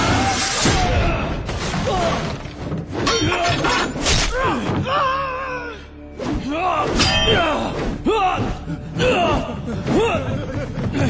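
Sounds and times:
weapons clashing: 1.8s - 4.7s, 6.8s - 7.8s.

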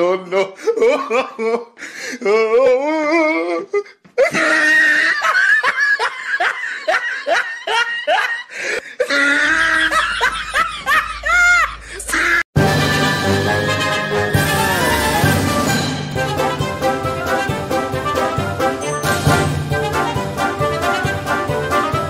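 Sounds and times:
people laughing hard: 0.3s - 1.8s, 4.2s - 12.4s.

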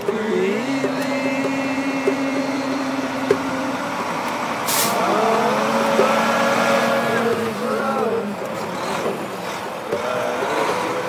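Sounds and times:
heavy truck engine running: 0.0s - 11.0s
air brakes hissing: 4.5s - 5.2s.

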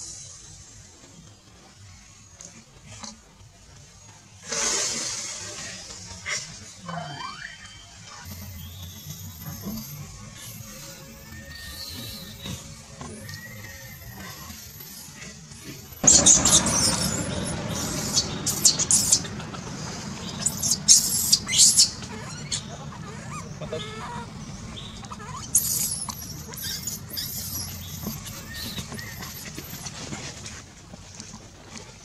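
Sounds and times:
infant monkey squealing: 6.9s - 30.1s.

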